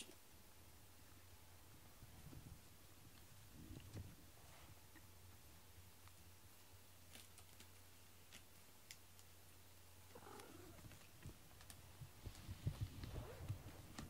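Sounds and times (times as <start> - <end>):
cat purring: 10.0 - 14.0.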